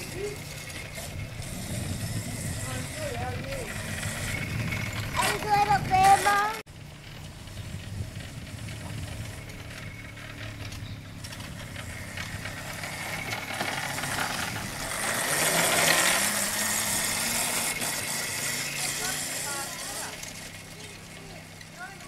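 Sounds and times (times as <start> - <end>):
small quad bike engine: 0.0 - 22.0.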